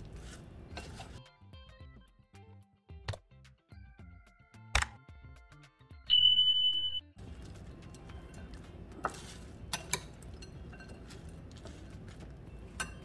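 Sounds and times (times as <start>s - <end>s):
puffed rice mix stirred in bowl: 0.0s - 1.2s, 7.2s - 13.0s
background music high tone: 5.9s - 7.2s.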